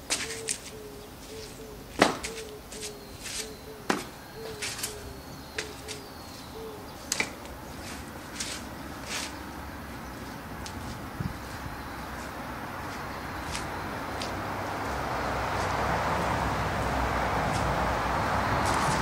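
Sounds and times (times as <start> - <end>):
scuffs and slaps of footwork: 0.0 - 0.8, 1.4 - 5.0, 7.1 - 9.4, 10.2 - 14.4, 17.4 - 17.8, 18.6 - 19.0
dove cooing: 0.2 - 7.0.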